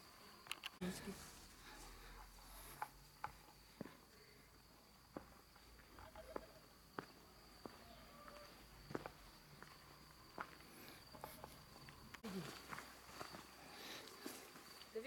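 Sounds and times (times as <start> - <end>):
footsteps walking: 5.1 - 14.9
faint steady high tone: 5.8 - 13.4.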